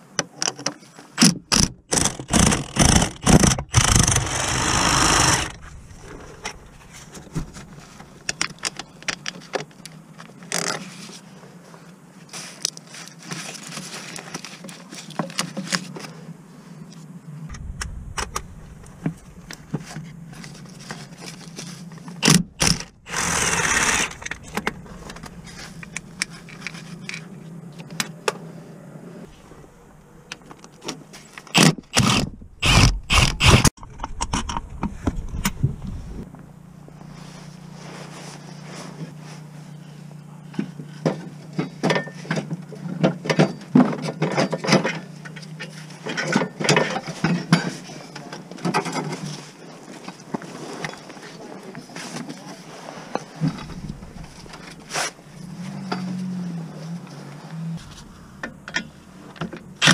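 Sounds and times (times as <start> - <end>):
loud rushing burst: 2.6 - 8.2, 17.5 - 20.8, 22.2 - 26.5.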